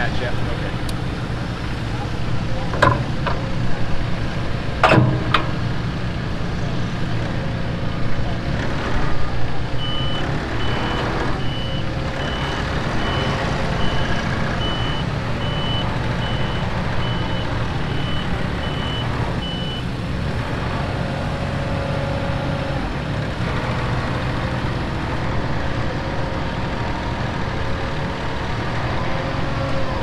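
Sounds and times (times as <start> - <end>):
loader engine running: 0.0 - 30.0
back-up alarm beeping: 9.8 - 19.8.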